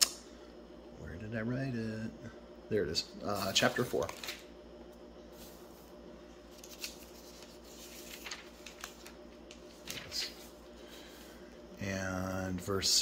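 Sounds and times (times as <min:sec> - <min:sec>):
low room hum: 0:00.0 - 0:13.0
thin pages being turned: 0:03.5 - 0:04.4, 0:06.5 - 0:10.7.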